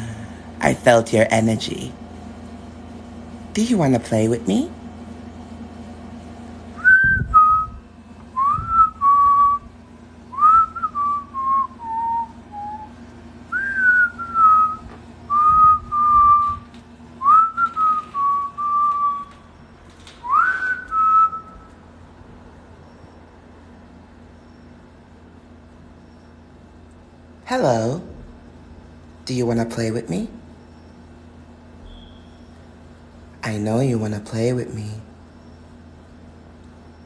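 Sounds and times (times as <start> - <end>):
person whistling: 6.8 - 7.8, 8.4 - 9.6, 10.4 - 16.6, 17.2 - 19.3, 20.2 - 21.7.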